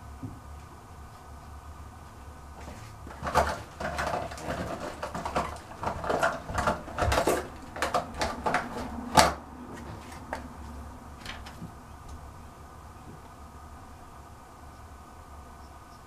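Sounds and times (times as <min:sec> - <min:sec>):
small items clicking and rattling: 0:03.1 - 0:10.5.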